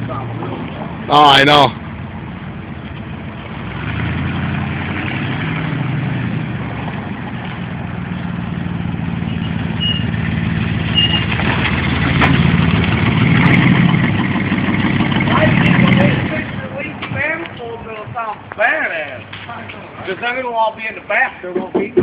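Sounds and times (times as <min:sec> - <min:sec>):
truck engine low exhaust note: 0:00.0 - 0:17.2.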